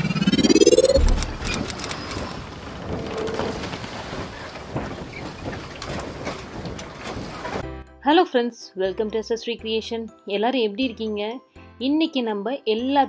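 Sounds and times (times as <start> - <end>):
low boom: 0.0 - 1.8
rising whoosh: 0.0 - 2.4
scattered clicks: 0.6 - 2.5.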